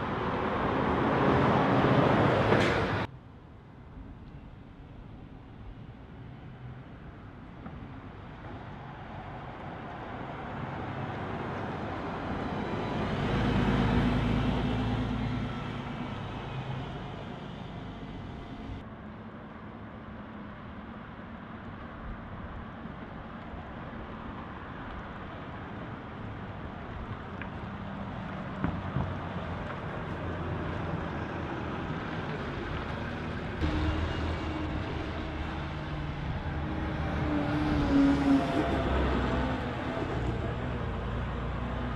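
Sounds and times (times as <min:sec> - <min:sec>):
buses driving past: 0:00.0 - 0:03.1, 0:03.8 - 0:41.9.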